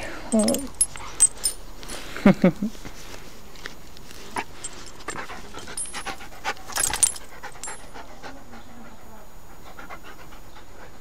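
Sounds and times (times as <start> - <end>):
rustling on grass: 0.4 - 7.3
dog panting: 4.2 - 11.0.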